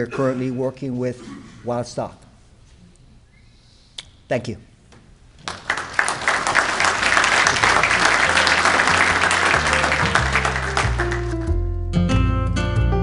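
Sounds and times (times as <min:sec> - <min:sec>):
audience applauding: 0:05.4 - 0:11.5.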